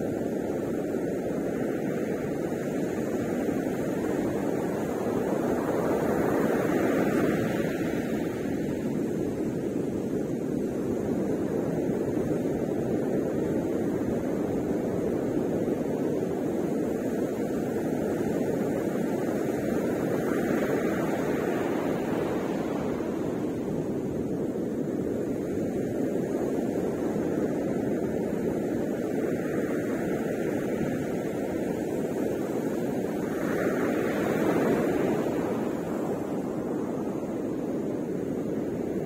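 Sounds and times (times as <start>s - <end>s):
wind rumbling on microphone: 0.0s - 39.0s
ocean surf breaking: 20.3s - 24.3s, 28.9s - 39.0s.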